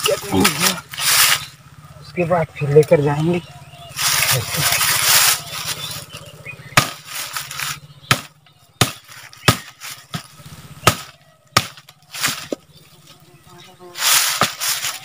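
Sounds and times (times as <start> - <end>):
axe chopping branch: 6.7 - 12.7, 14.0 - 15.0.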